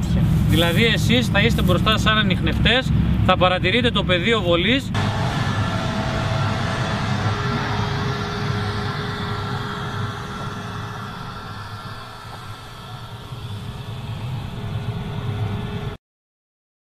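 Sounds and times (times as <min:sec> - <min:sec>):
vehicle engine whining: 0:04.9 - 0:16.0.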